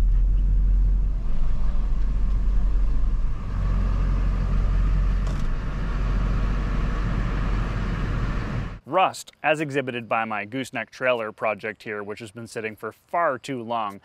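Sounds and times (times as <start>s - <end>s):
truck engine rumbling: 0.0s - 8.8s.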